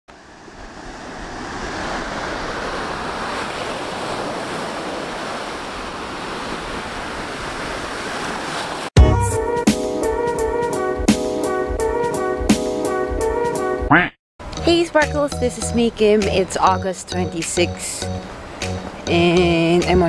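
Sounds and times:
ocean waves washing up beach: 0:00.1 - 0:09.0.

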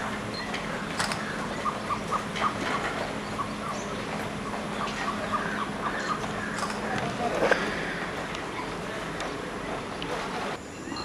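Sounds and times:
ostrich chicks peeping: 0:00.0 - 0:07.0
scattered clicks: 0:00.4 - 0:01.4, 0:06.1 - 0:07.6.

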